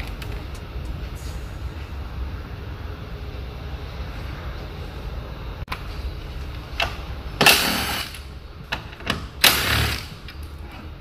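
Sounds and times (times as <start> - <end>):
low steady hum: 0.0 - 11.0
impact wrench bursts: 7.4 - 8.2, 9.4 - 10.2.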